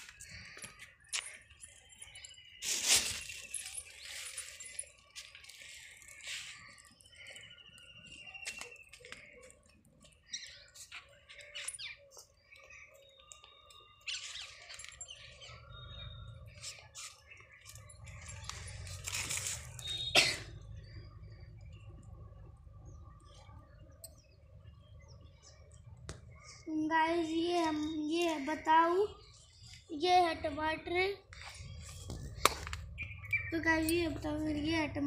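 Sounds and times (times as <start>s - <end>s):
bird chirps: 0.0s - 26.8s, 31.3s - 35.0s
rustling: 2.6s - 6.8s, 18.2s - 19.9s.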